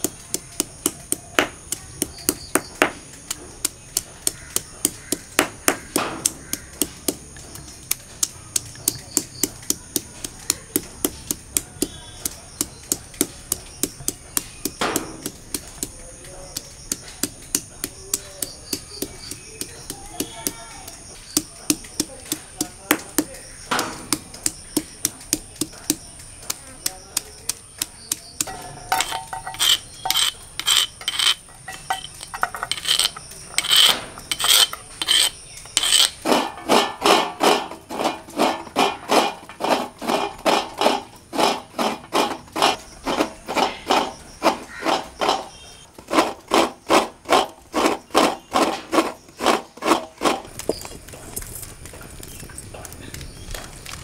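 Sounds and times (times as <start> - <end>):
stone pestle knocks: 0.0 - 50.5
stone-on-stone rubbing strokes: 16.6 - 50.5.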